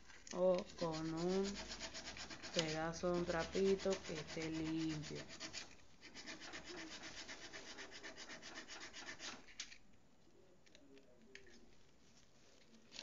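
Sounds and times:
rubbing on plastic propeller: 0:00.4 - 0:09.6.

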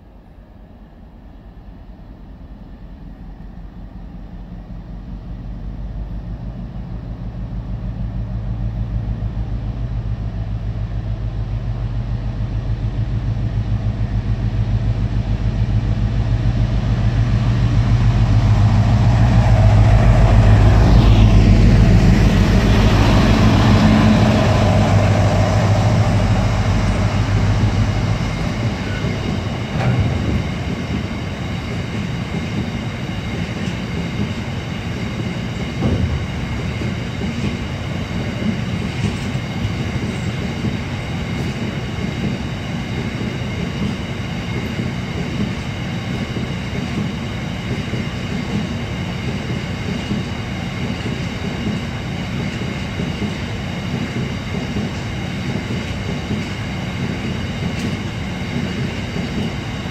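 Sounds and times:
diesel locomotive engine passing: 0:00.0 - 0:59.9
train wheel clatter: 0:21.9 - 0:59.9.

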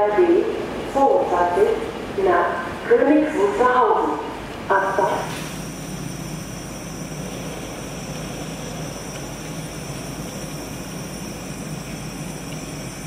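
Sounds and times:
train rumbling into station: 0:00.0 - 0:13.0.

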